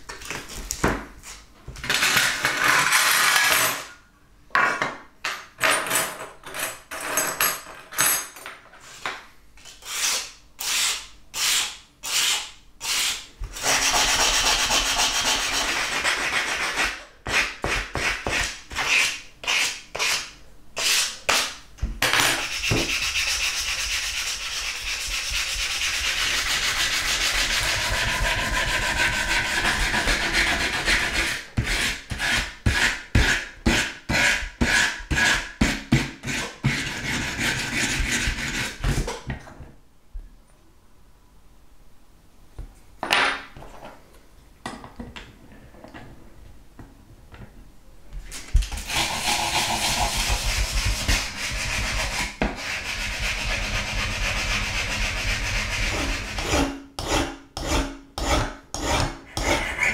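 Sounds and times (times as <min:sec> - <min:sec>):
sandpaper rubbing on metal: 0:22.4 - 0:31.4, 0:48.8 - 0:56.6.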